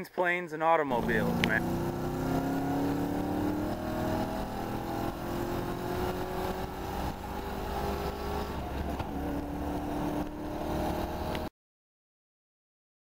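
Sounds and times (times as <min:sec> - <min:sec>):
car engine and road noise: 0:00.8 - 0:11.5.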